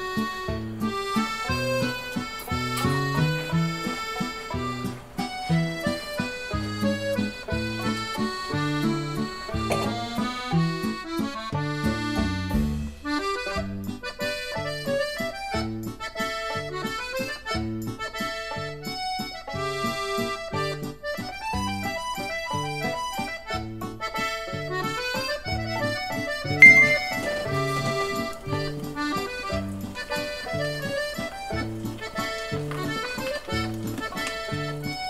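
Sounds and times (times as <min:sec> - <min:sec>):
comical accordion music: 0:00.0 - 0:35.0
bright high tone: 0:26.6 - 0:27.6.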